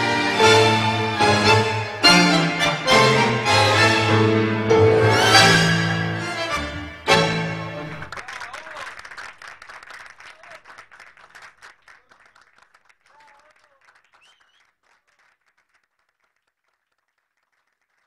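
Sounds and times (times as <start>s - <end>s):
audience applauding: 5.3s - 18.0s.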